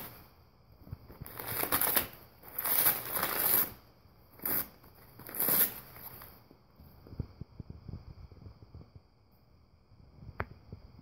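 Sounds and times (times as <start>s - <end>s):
packing paper crinkling and tearing: 1.2s - 3.7s.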